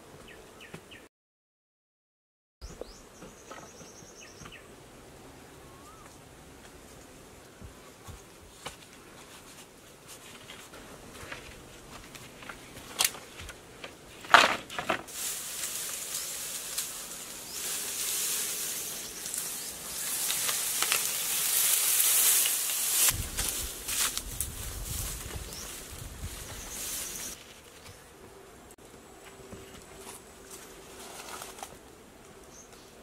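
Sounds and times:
dry grass rustling: 8.0s - 28.0s, 29.8s - 31.8s.

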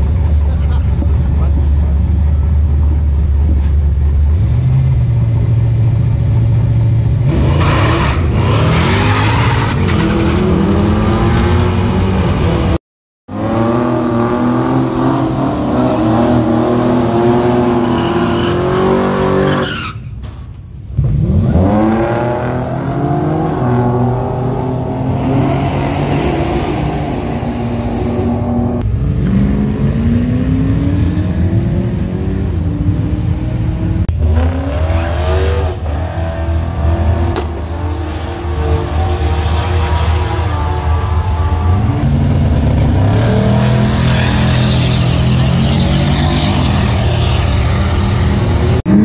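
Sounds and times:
drag racing car engines revving: 0.0s - 20.0s, 21.0s - 49.0s
tyre squeal: 17.5s - 20.3s.

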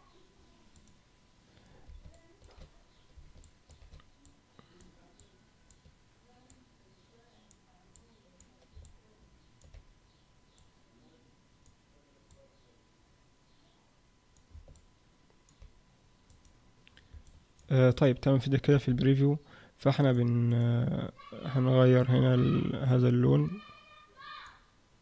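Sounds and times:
thin steady hum: 0.0s - 25.0s
computer mouse clicks: 0.7s - 1.0s, 1.9s - 6.6s, 7.4s - 9.0s, 9.6s - 9.8s, 10.5s - 10.7s, 14.3s - 17.7s.

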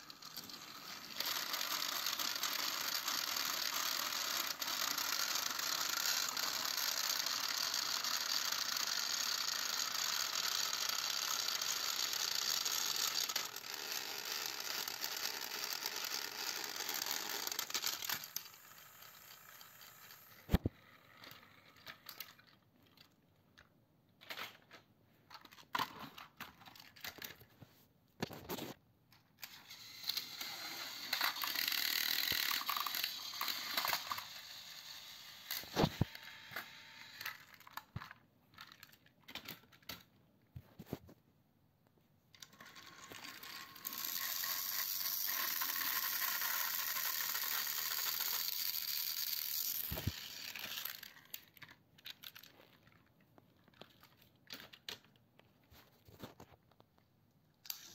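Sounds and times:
toy train motor whirring: 0.0s - 23.1s, 29.4s - 40.0s, 42.4s - 52.9s, 57.6s - 57.9s.

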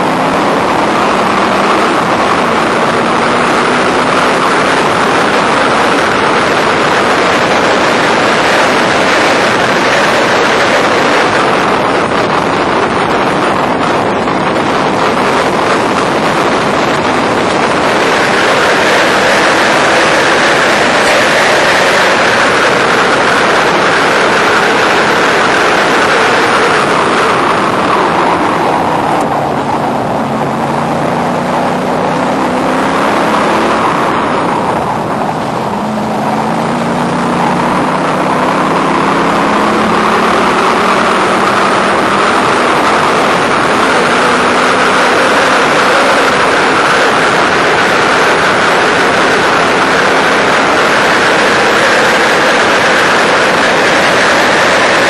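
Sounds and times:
race car engine revving: 0.0s - 55.0s
wind and road rush: 0.0s - 55.0s.

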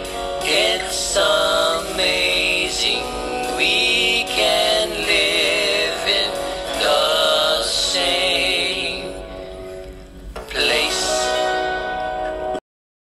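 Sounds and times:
backing music: 0.0s - 12.6s
person singing long wavering notes: 0.4s - 9.6s, 10.6s - 11.8s.

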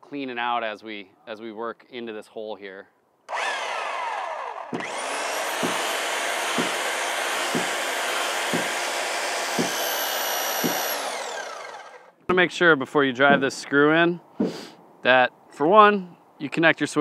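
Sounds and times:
power drill whine: 3.3s - 12.1s
drill bit knocking into wood: 4.7s - 12.0s.

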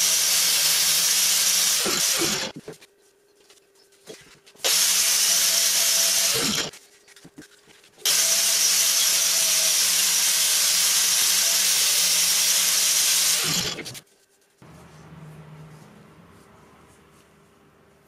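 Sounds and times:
angle grinder grinding steel: 0.0s - 2.5s, 4.6s - 6.7s, 8.0s - 14.0s.

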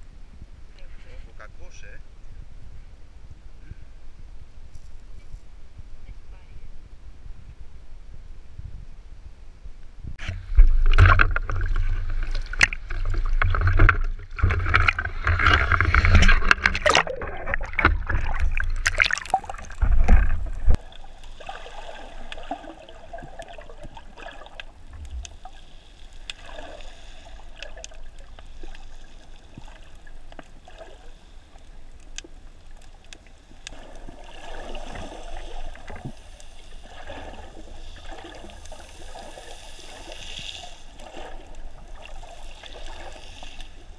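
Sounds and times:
water splashing against camera: 10.2s - 25.6s
faint clicks: 31.6s - 33.8s.

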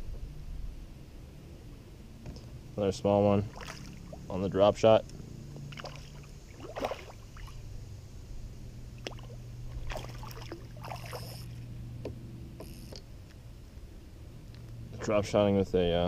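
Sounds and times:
steady low hum: 0.0s - 16.0s
fish splashing at water surface: 3.5s - 4.2s, 5.7s - 7.6s, 9.0s - 11.4s.

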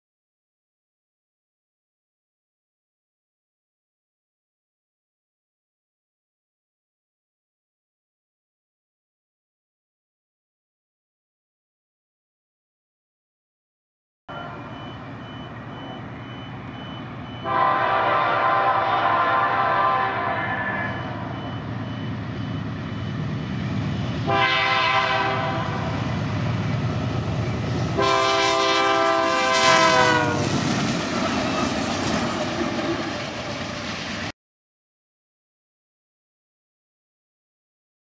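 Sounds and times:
locomotive air horn: 14.3s - 14.9s, 17.3s - 21.4s, 24.2s - 26.0s, 27.9s - 30.6s
low rumble of engine and wheels: 14.3s - 17.5s, 20.9s - 24.3s.

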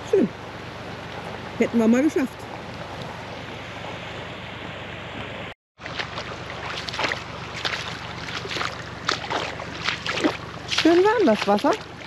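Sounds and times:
feet wading through water: 5.8s - 12.0s
shallow river rushing: 5.8s - 12.0s.

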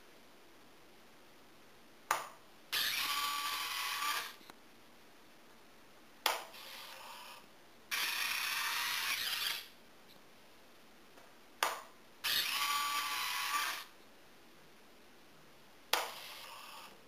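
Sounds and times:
small geared motor whirring: 2.8s - 4.4s, 7.9s - 9.7s, 12.2s - 13.9s.

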